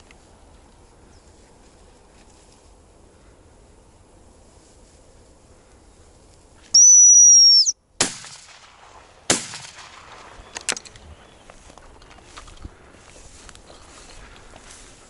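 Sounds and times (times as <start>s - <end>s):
dog whistle blown: 6.8s - 7.8s
shotgun shots: 8.0s - 10.4s.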